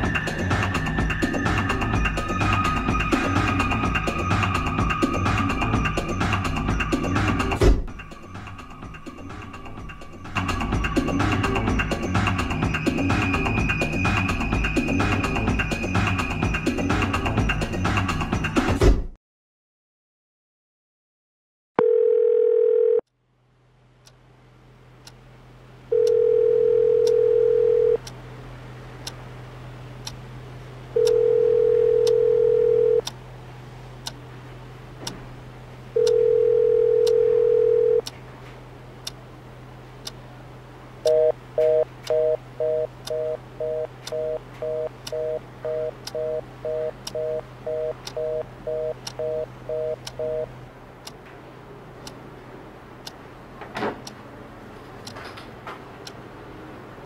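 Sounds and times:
telephone ringback tone: 21.8s - 23.0s, 25.9s - 28.0s, 31.0s - 33.0s, 36.0s - 38.0s, 41.1s - 50.5s
busy tone beeping: 25.9s - 28.0s, 31.0s - 33.0s, 36.0s - 38.1s, 41.0s - 50.5s
clock ticking: 26.0s - 26.2s, 26.9s - 27.2s, 31.0s - 31.2s, 32.0s - 33.2s, 36.0s - 36.3s, 36.9s - 37.2s, 37.9s - 38.1s, 41.0s - 51.2s.

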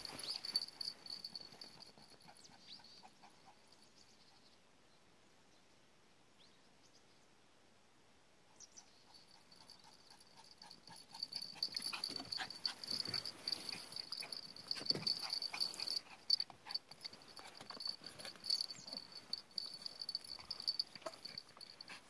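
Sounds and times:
dogs play-fighting whimpering: 0.0s - 3.6s, 9.5s - 22.0s.

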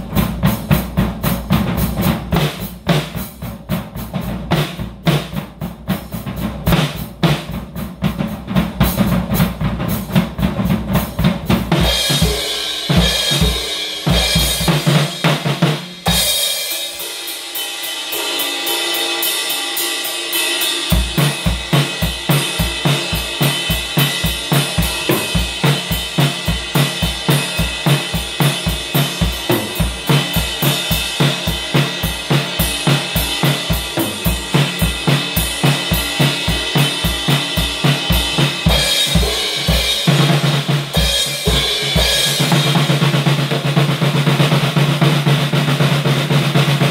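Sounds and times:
drum kit groove: 0.0s - 46.9s.

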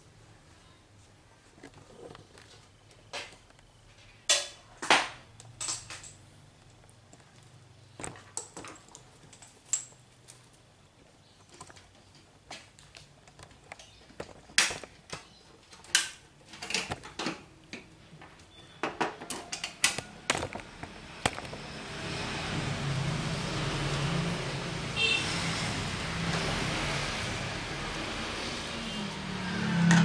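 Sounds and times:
metal parts clanking on tiled floor: 4.3s - 6.2s.

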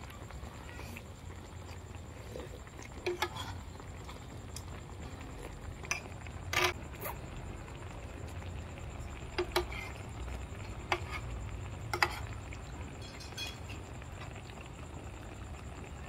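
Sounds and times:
steady low hum: 0.0s - 16.0s
utensils clinking on a plate: 13.0s - 13.8s.

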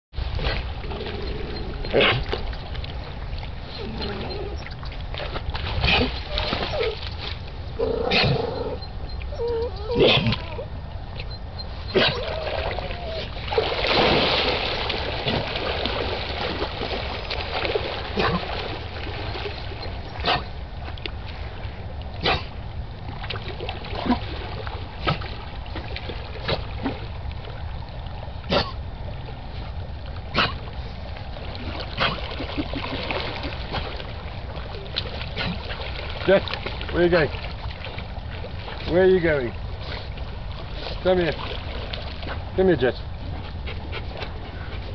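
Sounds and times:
dogs splashing in water: 0.2s - 8.9s, 11.6s - 29.6s, 30.2s - 44.9s
steady low rumble: 14.4s - 44.9s.

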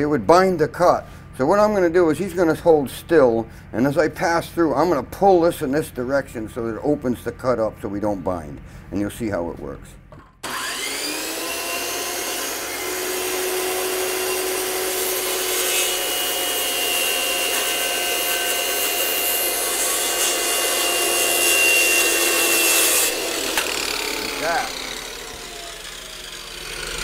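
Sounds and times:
circular saw cutting wood: 10.4s - 27.0s.

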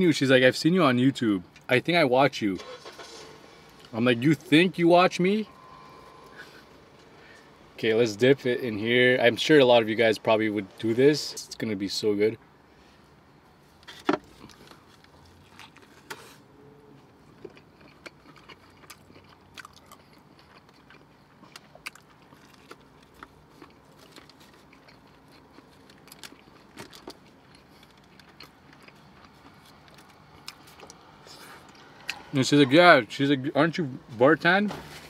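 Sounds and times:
person chewing food: 14.2s - 16.3s, 17.0s - 32.3s.

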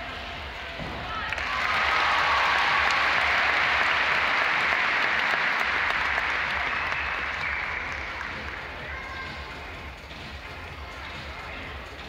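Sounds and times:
crowd applauding: 1.2s - 8.8s.

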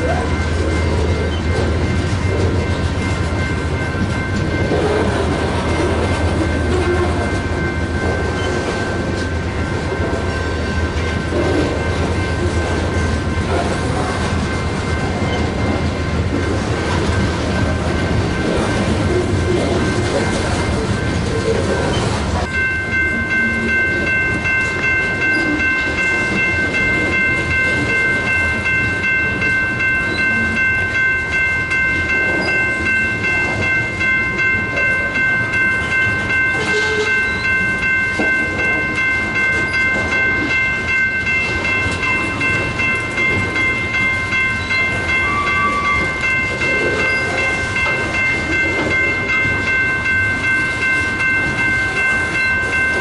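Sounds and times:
freight train rumbling past: 0.0s - 53.0s.

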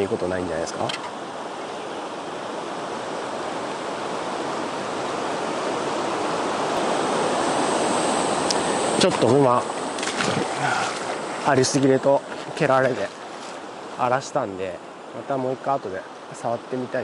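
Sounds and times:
water rushing over rocks: 1.2s - 14.6s.

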